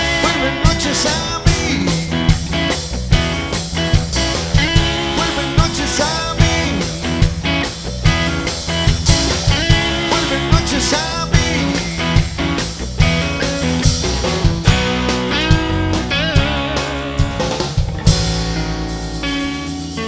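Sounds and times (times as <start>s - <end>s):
lead guitar bending notes: 0.0s - 20.0s
rock band playing: 0.0s - 20.0s.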